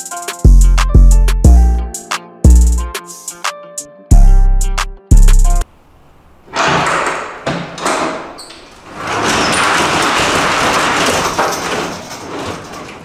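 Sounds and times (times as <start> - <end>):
music with heavy bass: 0.0 - 5.6
roll-up door rattling: 6.5 - 13.0.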